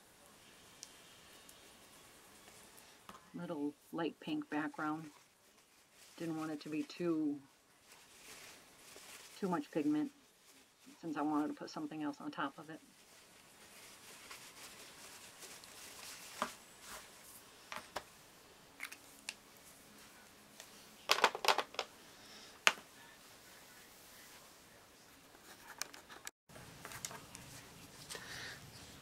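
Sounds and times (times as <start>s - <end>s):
paper towel wiping: 12.8s - 17.5s
craft supplies clicking and rustling: 21.1s - 21.9s.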